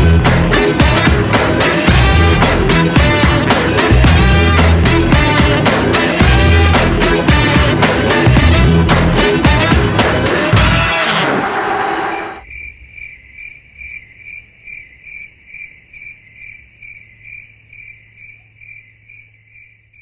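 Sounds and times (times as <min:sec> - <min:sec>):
background music: 0:00.0 - 0:12.4
cricket chirping: 0:12.4 - 0:20.0.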